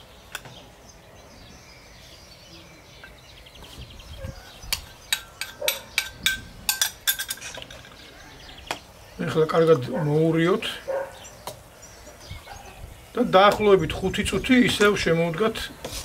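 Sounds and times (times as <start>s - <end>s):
spoon clinking on metal pot: 4.7s - 7.8s.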